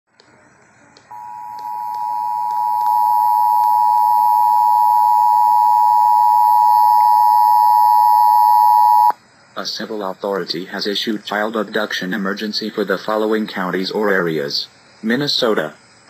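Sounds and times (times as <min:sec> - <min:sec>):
two-tone alert signal from radio: 0:01.1 - 0:09.1.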